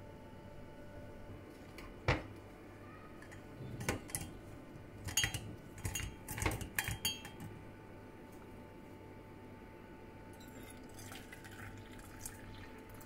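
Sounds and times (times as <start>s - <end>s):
kitchenware clinking with ringing: 3.2s - 4.4s, 5.0s - 7.5s, 10.4s - 11.2s.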